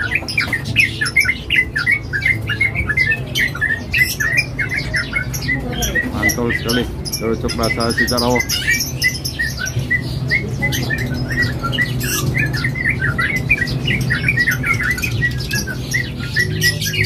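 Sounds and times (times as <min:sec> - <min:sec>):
bird chirping song: 0:00.0 - 0:17.0.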